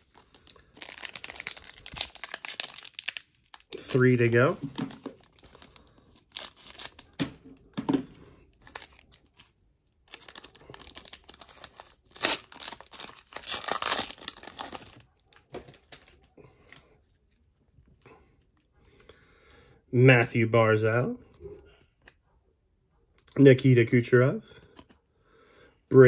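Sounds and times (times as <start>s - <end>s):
foil wrapper tearing and crinkling: 0.0s - 7.2s, 8.6s - 9.5s, 10.1s - 16.1s.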